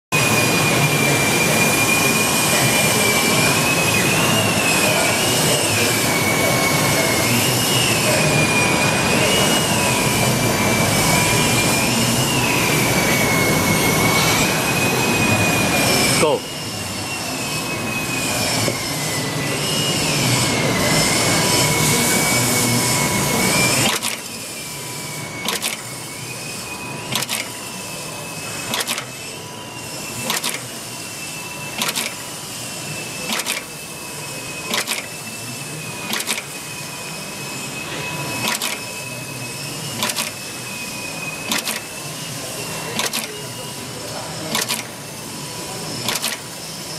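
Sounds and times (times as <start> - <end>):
machine motor whine: 0.2 - 46.9
machine clacking: 23.7 - 24.4, 25.4 - 25.9, 27.1 - 27.6, 28.6 - 29.2, 30.2 - 30.7, 31.7 - 32.3, 33.2 - 33.7, 34.7 - 35.2, 36.0 - 36.6, 38.4 - 39.0, 39.9 - 40.5, 41.4 - 42.0, 43.0 - 43.4, 44.4 - 45.0, 46.0 - 46.6.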